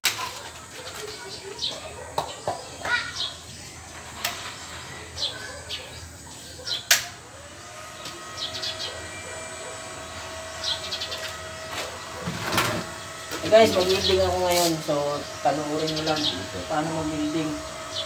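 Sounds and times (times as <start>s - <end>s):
small birds chirping: 0.4s - 18.0s
sharp click: 6.9s - 7.1s.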